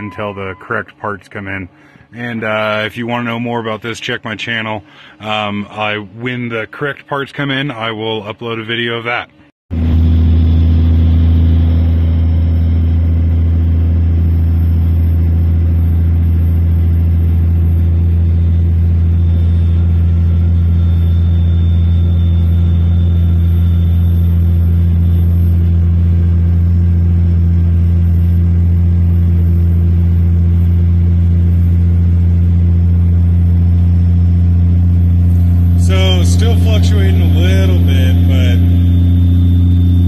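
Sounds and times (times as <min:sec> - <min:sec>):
diesel engine drone in cab: 0:00.0 - 0:40.0
road noise: 0:15.4 - 0:40.0.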